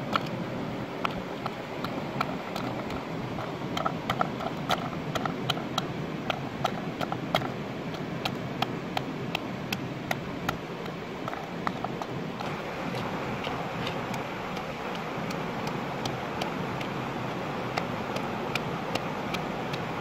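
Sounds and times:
steady background noise: 0.0 - 20.0.

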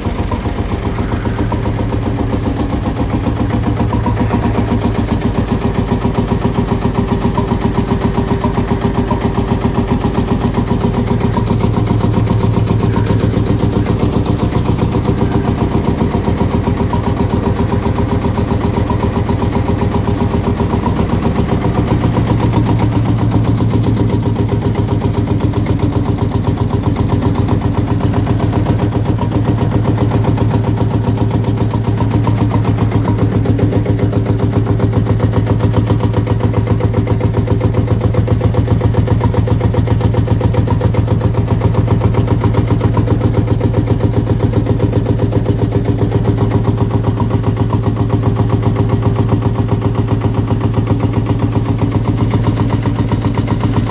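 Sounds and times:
diesel tractor engine idling: 0.0 - 53.9.

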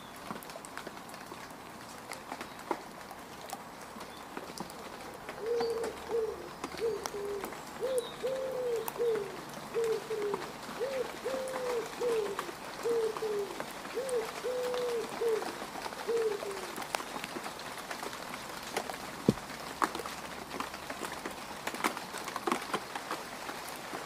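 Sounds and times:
rain falling on mud: 0.0 - 24.0
dove cooing: 5.4 - 16.8.

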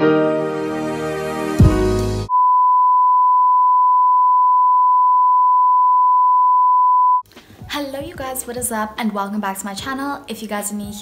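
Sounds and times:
background music: 0.0 - 2.3, 7.3 - 11.0.

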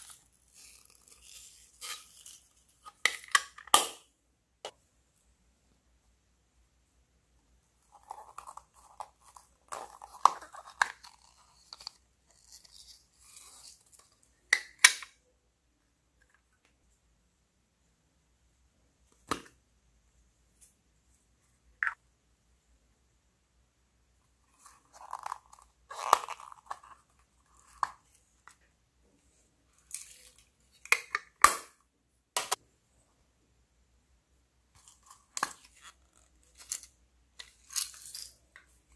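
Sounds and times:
plastic case snapping open and shut: 2.9 - 4.0, 14.6 - 15.2.

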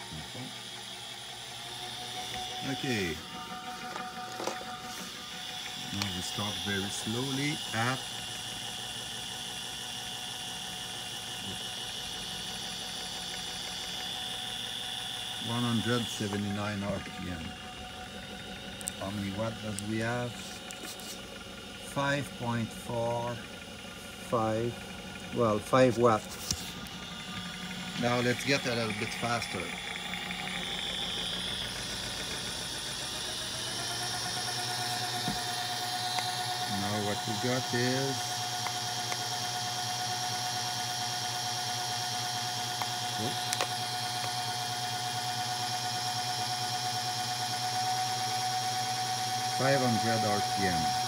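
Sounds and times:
electric drill running: 0.0 - 51.0
generator humming and whining: 0.0 - 51.0
higher steady tone: 1.8 - 8.5, 49.4 - 51.0.

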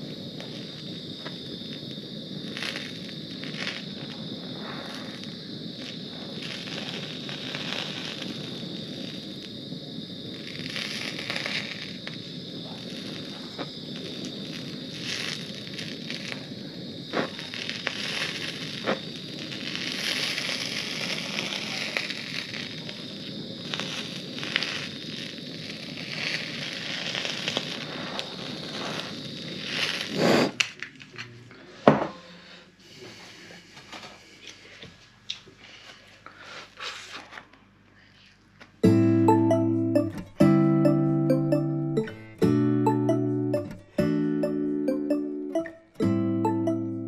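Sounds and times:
blowtorch hissing with crackles: 0.0 - 31.3.

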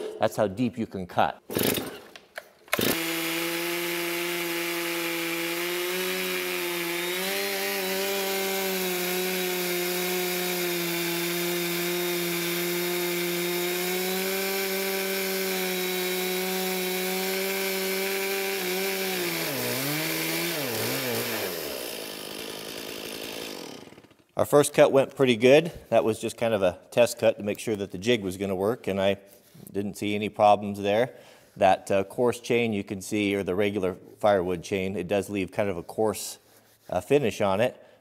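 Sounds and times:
chainsaw cutting wood: 1.5 - 24.4.

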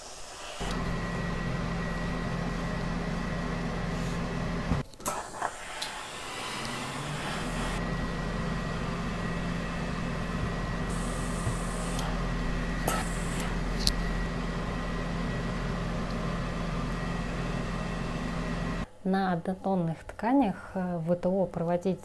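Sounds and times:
steam hiss: 0.0 - 0.7, 5.0 - 7.8, 10.8 - 12.2, 12.8 - 13.5
steady machine hum: 0.6 - 19.0.

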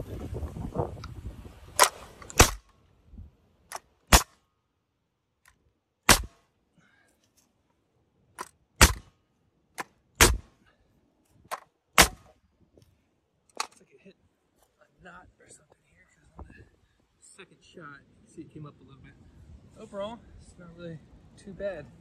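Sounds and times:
nail gun firing: 1.8 - 2.7, 3.7 - 4.4, 6.1 - 6.4, 8.4 - 9.1, 9.8 - 10.5, 11.5 - 12.3.

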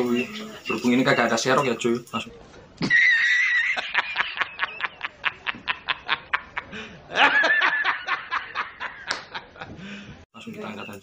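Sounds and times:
man laughing hard: 2.9 - 9.7.

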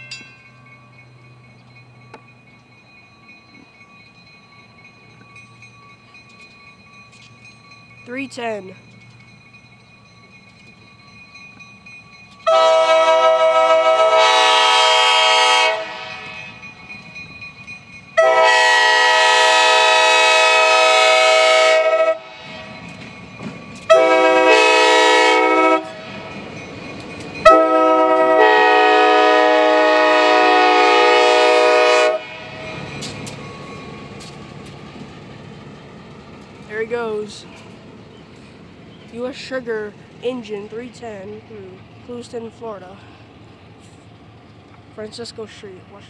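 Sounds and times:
locomotive air horn blasts: 12.4 - 16.4, 18.2 - 22.4, 23.9 - 26.0, 27.4 - 32.4.

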